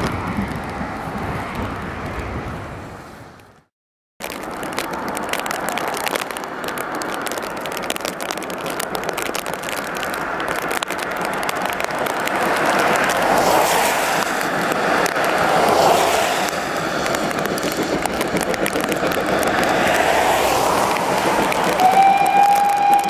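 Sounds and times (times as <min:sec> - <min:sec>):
steam locomotive exhaust rushing: 0:13.2 - 0:23.0.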